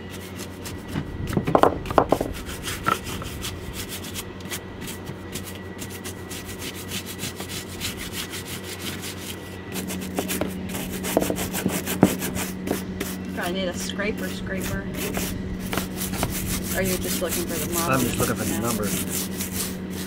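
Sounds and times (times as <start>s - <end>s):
cloth scrubbing fishing reel: 14.6s - 20.0s.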